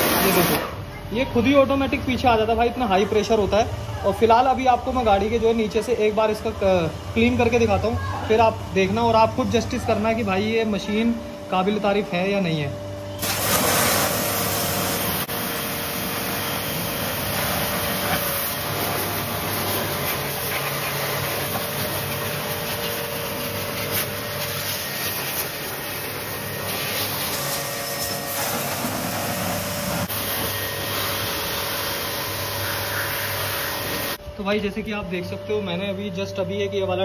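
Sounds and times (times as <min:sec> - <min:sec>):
pressure washer water jet hissing: 0:00.0 - 0:00.8, 0:13.1 - 0:34.2
pump motor hum: 0:00.0 - 0:00.9, 0:12.3 - 0:34.3.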